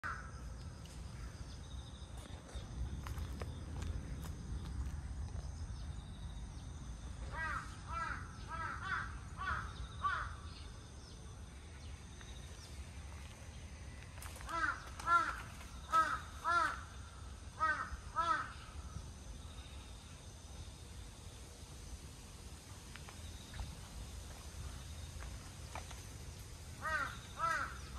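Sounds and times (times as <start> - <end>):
crow cawing: 0.0 - 0.3, 7.3 - 10.4, 14.4 - 17.0, 17.6 - 18.8, 26.8 - 27.9.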